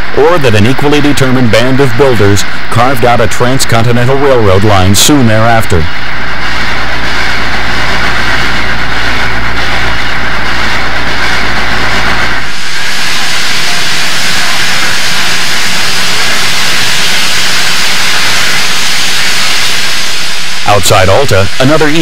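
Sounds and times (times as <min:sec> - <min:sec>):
steam locomotive exhaust and hiss: 0:00.0 - 0:22.0
deep rumble: 0:05.9 - 0:22.0.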